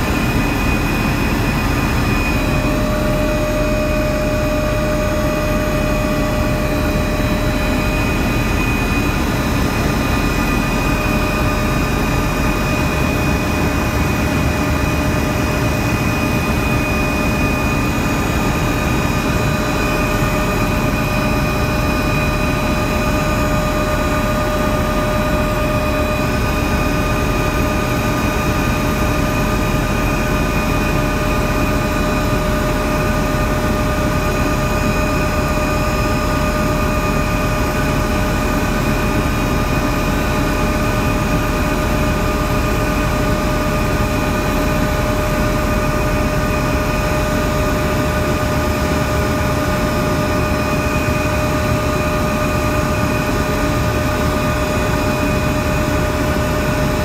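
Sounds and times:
helicopter engine and rotor noise: 0.0s - 57.0s
high whine: 0.0s - 57.0s.

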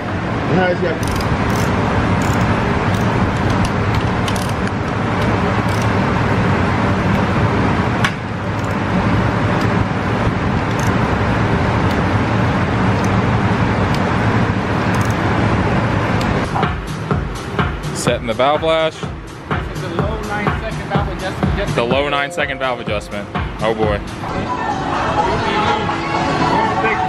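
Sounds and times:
sharp clicks: 1.0s - 5.9s, 10.7s - 11.0s, 13.0s - 13.2s, 14.9s - 15.2s.

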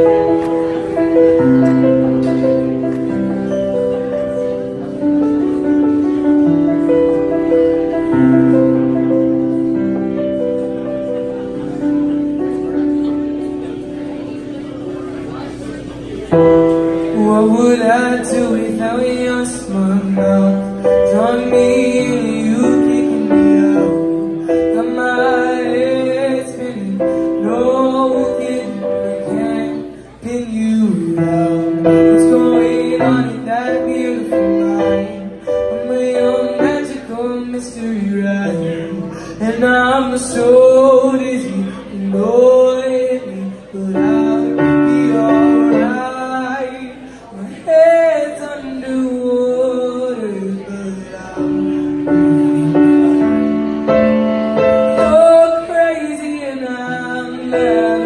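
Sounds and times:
electric keyboard chords: 0.0s - 58.0s
man singing into a microphone: 16.5s - 58.0s.

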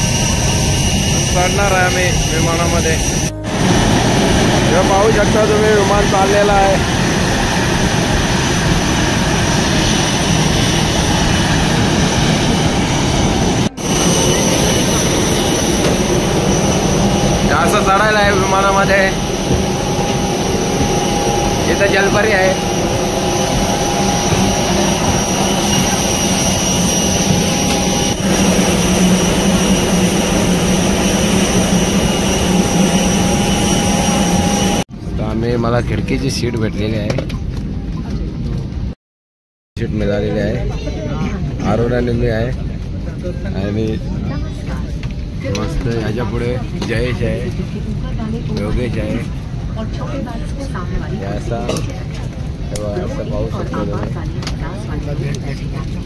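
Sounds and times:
faint high whine: 0.0s - 34.9s
airliner engines running: 0.0s - 39.0s, 39.9s - 56.0s.

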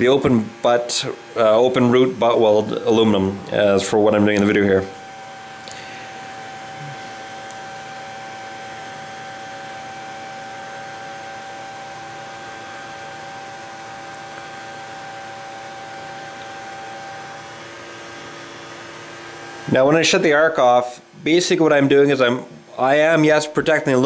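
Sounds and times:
welding arc hissing and humming: 0.0s - 12.0s.

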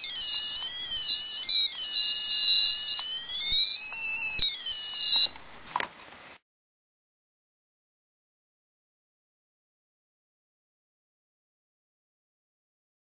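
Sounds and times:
high-pitched electronic tone: 0.0s - 5.4s.

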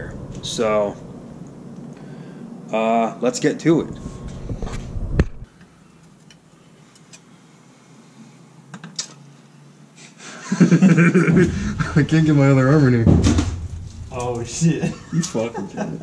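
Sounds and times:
man talking: 11.3s - 13.2s, 14.1s - 16.0s.

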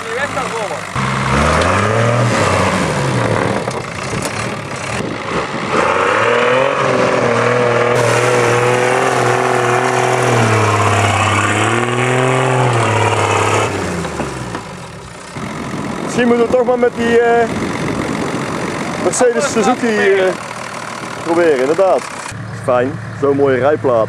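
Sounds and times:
engine revving hard: 0.1s - 3.7s, 4.3s - 14.5s
wheels spinning in loose dirt: 3.4s - 5.6s.

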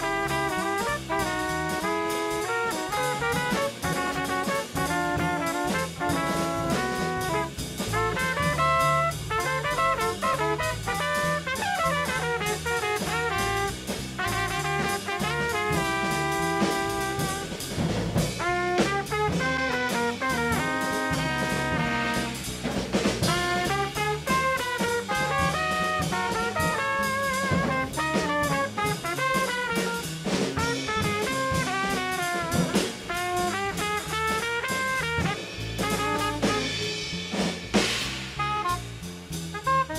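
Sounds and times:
saxophone melody: 0.0s - 12.1s, 18.4s - 22.4s, 23.3s - 30.0s, 30.6s - 36.8s
bass: 0.0s - 39.9s
congas: 0.0s - 39.9s
drum kit: 0.0s - 39.9s.

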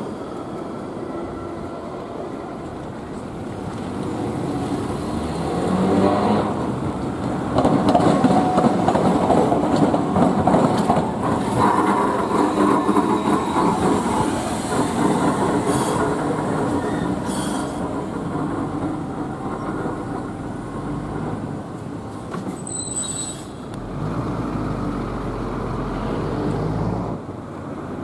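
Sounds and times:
streetcar wheels clattering on rails: 0.0s - 28.0s
high wheel squeal: 11.4s - 17.9s, 22.4s - 23.7s.

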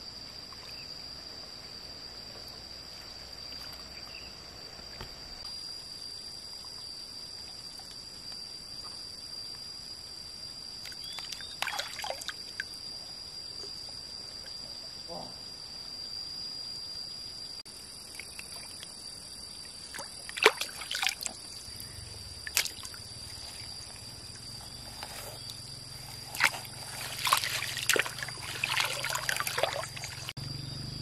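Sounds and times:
insects droning: 0.0s - 31.0s
faint water sounds: 18.1s - 30.4s
fish splashing in net: 26.3s - 30.3s.

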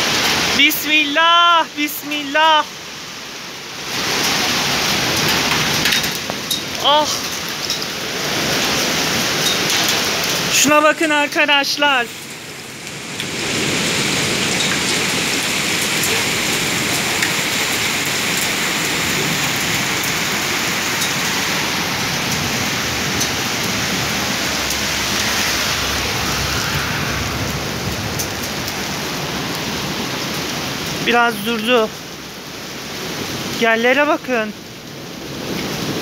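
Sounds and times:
heavy rain pelting down: 0.0s - 36.0s
hailstones striking: 3.9s - 11.8s, 12.4s - 26.3s.

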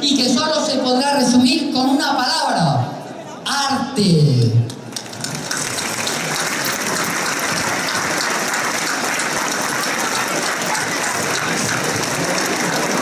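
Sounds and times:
crowd applauding: 4.9s - 13.0s.

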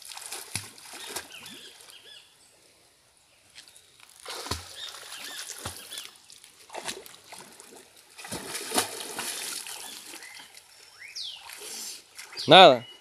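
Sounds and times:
sharp splashes: 0.0s - 1.9s, 4.1s - 10.6s
river water splashing: 0.0s - 2.2s, 3.6s - 12.8s.

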